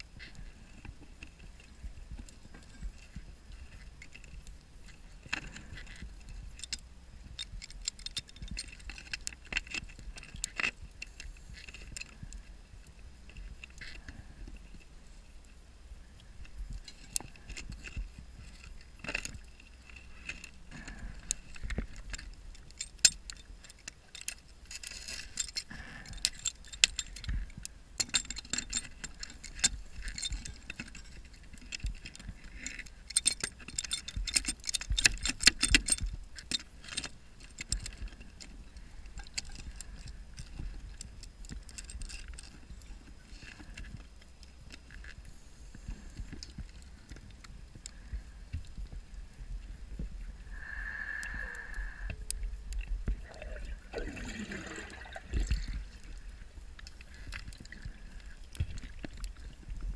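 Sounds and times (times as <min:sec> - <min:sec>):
underwater bubbles clicking: 0:53.1 - 0:55.9.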